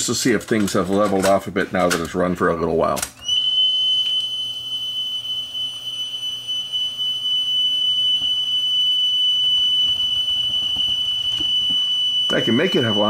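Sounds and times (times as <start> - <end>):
high-pitched test tone: 3.2 - 13.0.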